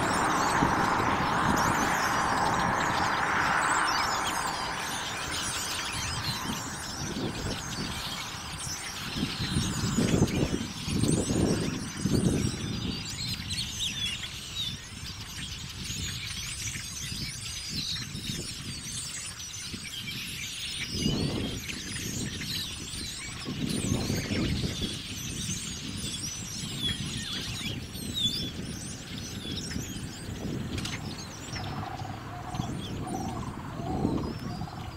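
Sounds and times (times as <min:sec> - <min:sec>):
flock of blackbirds chirping: 0:00.0 - 0:34.9
low rushing noise: 0:30.7 - 0:34.9.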